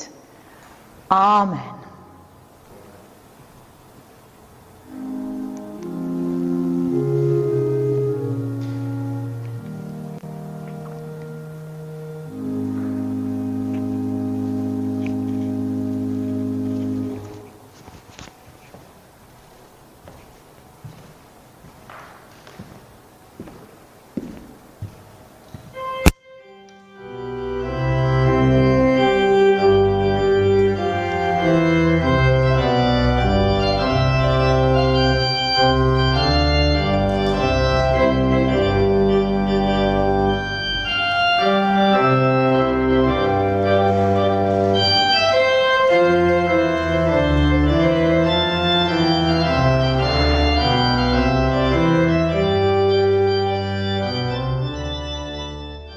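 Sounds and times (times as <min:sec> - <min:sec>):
church organ chords: 0:04.4 - 0:18.3, 0:25.5 - 0:55.9.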